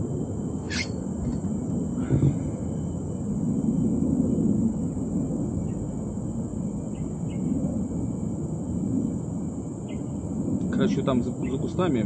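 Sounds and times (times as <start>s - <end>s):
faint high insect drone: 0.0s - 12.0s
low rumbling background noise: 0.0s - 12.0s
short bird chirps: 0.7s - 1.0s.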